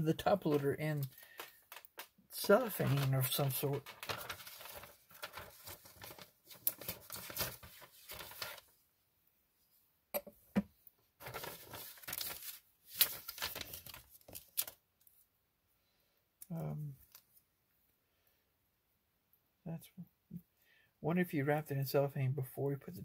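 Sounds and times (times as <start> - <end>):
cellophane crackling and tearing: 0.2 - 8.7, 11.2 - 14.8.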